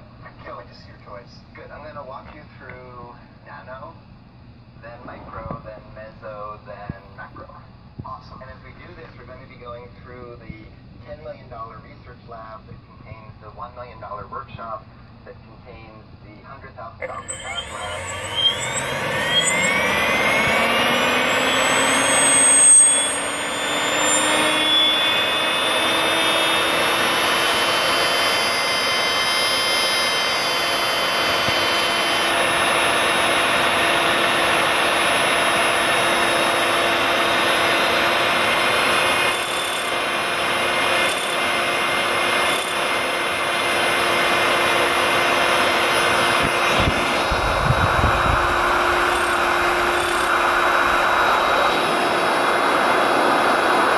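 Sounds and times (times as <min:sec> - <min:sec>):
high electric motor whine: 0:17.0 - 0:53.9
low rumble of air buffeting: 0:45.9 - 0:53.9
rush of air: 0:46.1 - 0:53.9.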